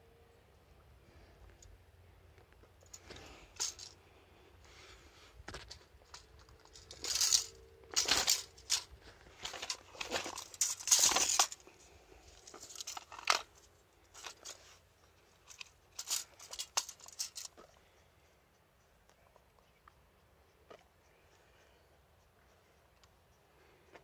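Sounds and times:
landing net rustling on concrete: 2.9s - 3.9s, 5.6s - 14.8s, 15.5s - 17.5s.

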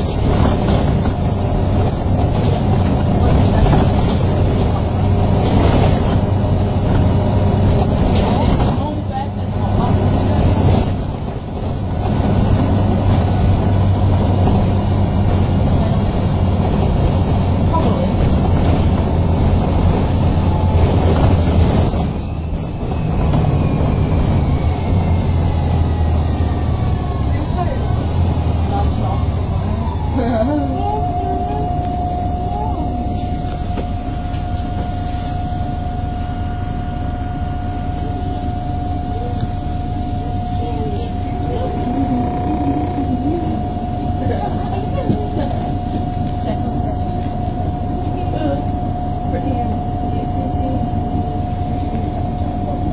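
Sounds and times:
bus diesel engine drone: 0.0s - 52.9s
road rumble: 0.0s - 52.9s.

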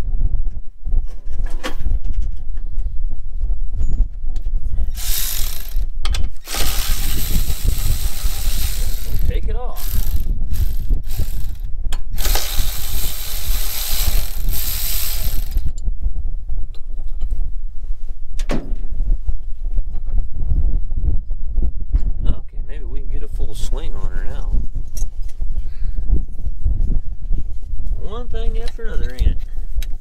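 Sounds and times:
compressed air tool running: 4.9s - 15.8s.

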